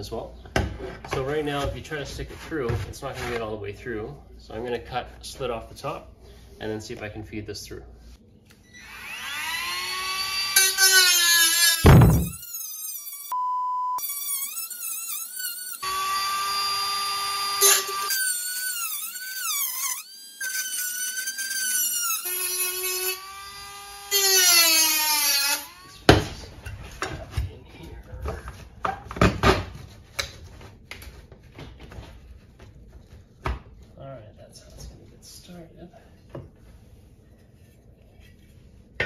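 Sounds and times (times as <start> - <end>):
rotary tool cutting metal: 8.8 - 13.4, 14.0 - 26.0.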